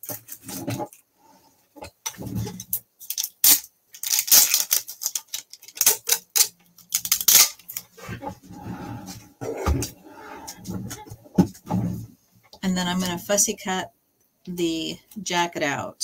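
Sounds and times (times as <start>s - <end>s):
packing tape ripping off roll: 3.0s - 7.9s.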